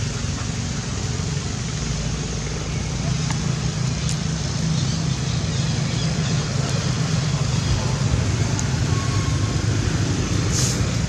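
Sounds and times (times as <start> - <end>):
faint voices: 5.4 - 11.0.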